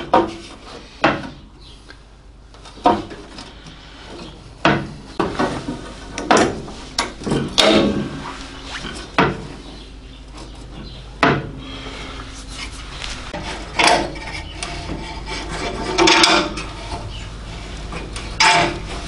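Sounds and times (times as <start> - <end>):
metal scraping and rubbing: 5.3 - 10.9, 11.8 - 19.0
metal knocks: 9.1 - 9.5
metal clattering rattle: 13.4 - 19.0.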